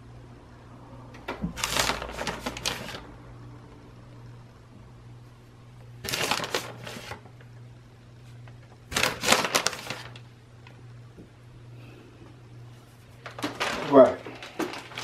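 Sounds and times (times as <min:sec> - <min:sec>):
steady low hum: 0:00.0 - 0:15.0
plastic bag crinkling: 0:01.6 - 0:03.1, 0:06.0 - 0:07.3, 0:08.9 - 0:10.3, 0:13.2 - 0:15.0.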